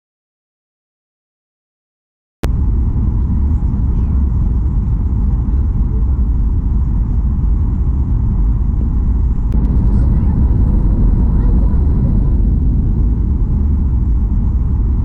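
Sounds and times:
jet engines rumbling: 2.4s - 15.0s
rushing air: 2.5s - 15.0s.

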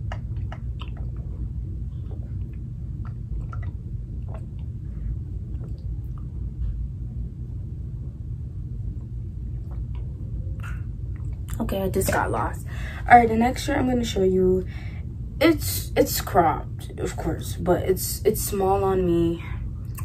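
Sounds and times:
low rumble: 0.0s - 15.4s.

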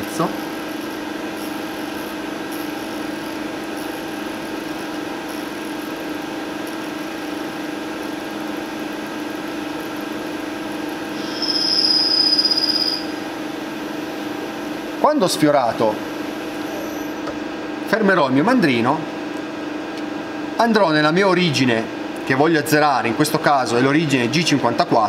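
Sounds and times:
lathe spindle humming whine: 0.0s - 17.8s
high-pitched tool squeal: 11.2s - 13.2s.

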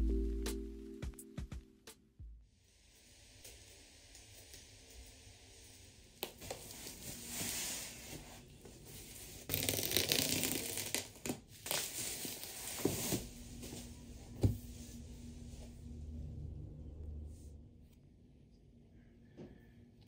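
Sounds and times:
bubble wrap crinkling: 9.0s - 13.3s
packing tape tearing: 9.5s - 12.5s.

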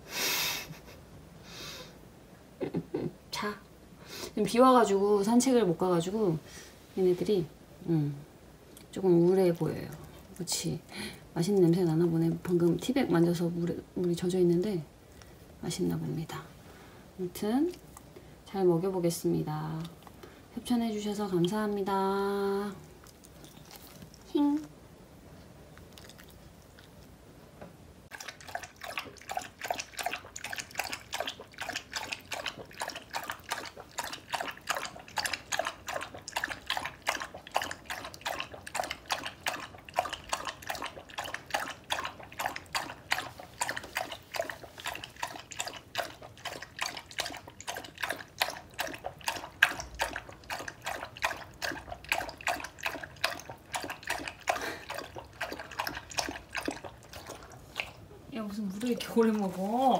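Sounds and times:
dog lapping water: 28.1s - 59.9s.

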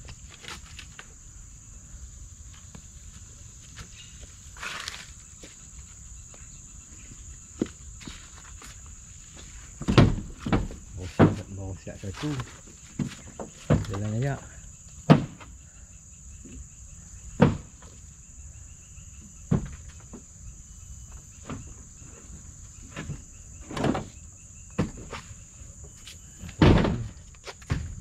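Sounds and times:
insects droning: 0.0s - 28.0s
thumps and scuffs: 2.5s - 14.2s, 22.8s - 28.0s.

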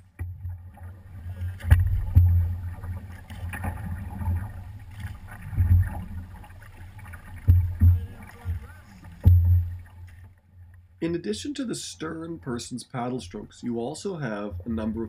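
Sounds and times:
paddles splashing in water: 0.0s - 10.4s.

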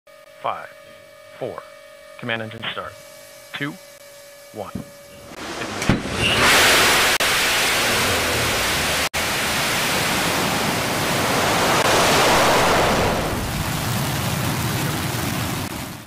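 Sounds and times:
rocket engine roaring: 5.4s - 16.0s.

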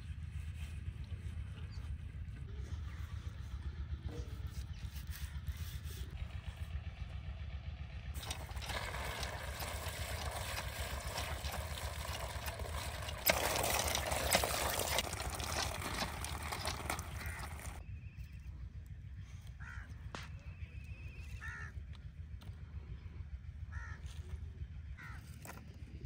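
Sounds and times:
water gushing from pump spout: 8.2s - 17.8s.

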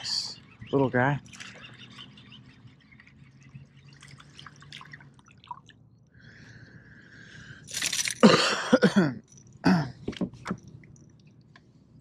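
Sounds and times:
water drips and splashes: 1.2s - 5.9s.

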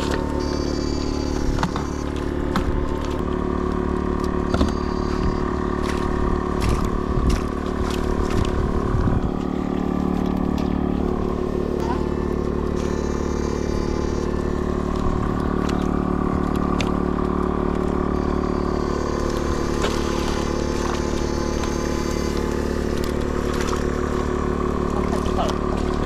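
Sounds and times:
faint high whine: 0.0s - 2.4s, 4.4s - 5.6s, 11.3s - 15.0s, 17.9s - 24.3s
electrical buzz: 0.0s - 26.0s.

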